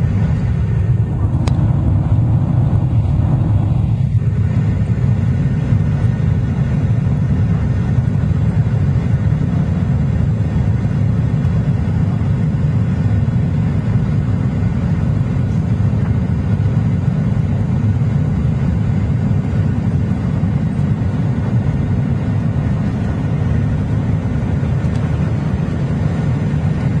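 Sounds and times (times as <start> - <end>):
rush of air: 0.0 - 6.1
jet engines at climb power: 0.0 - 27.0.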